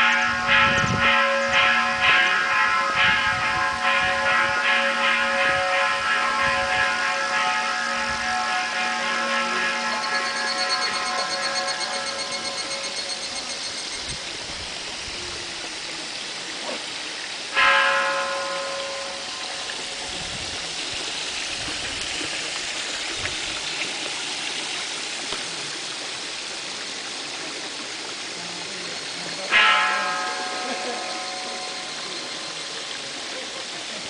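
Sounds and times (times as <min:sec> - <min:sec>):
bell ringing: 0:00.0 - 0:14.4, 0:29.3 - 0:33.5
water trickling: 0:03.0 - 0:34.0.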